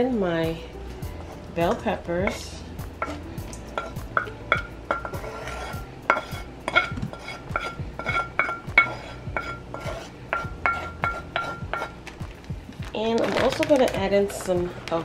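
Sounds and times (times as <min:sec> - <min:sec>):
utensils clinking on a metal bowl: 0:01.6 - 0:15.0.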